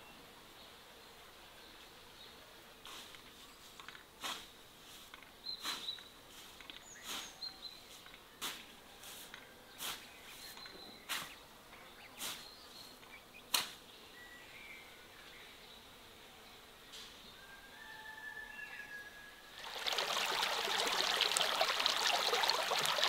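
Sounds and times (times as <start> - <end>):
scythe swishing through grass: 4.2 - 7.5, 8.4 - 10.2, 11.1 - 11.4, 12.2 - 12.5
birds chirping faintly: 19.6 - 23.0.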